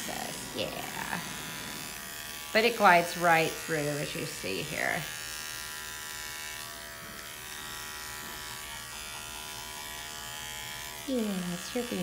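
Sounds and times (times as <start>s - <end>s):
hair clipper buzzing: 0.0s - 12.0s.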